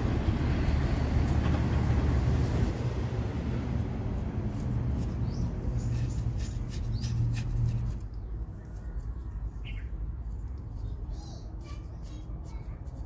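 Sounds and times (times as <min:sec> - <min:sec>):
low steady rumble: 0:00.0 - 0:10.7
birds chirping: 0:05.0 - 0:12.6.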